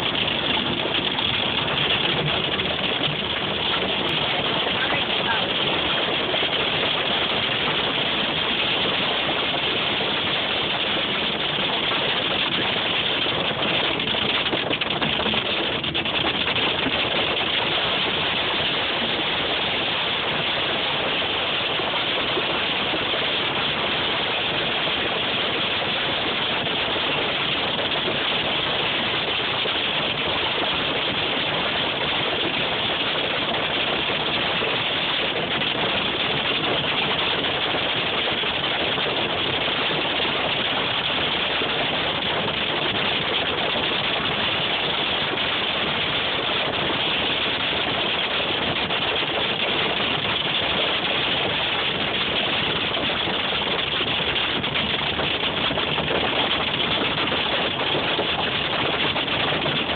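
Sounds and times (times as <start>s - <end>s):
hail pelting a car roof: 0.1s - 5.7s.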